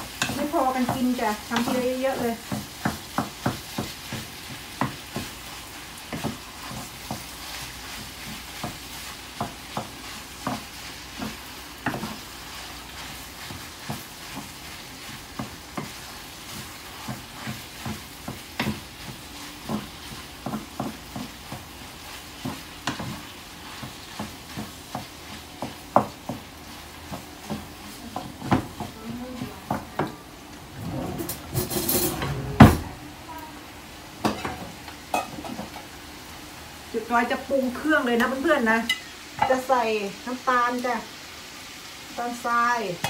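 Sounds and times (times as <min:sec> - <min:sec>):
meat sizzling in a frying pan: 0:00.0 - 0:30.6, 0:33.6 - 0:43.0
wooden spatula scraping a pan: 0:00.0 - 0:32.6.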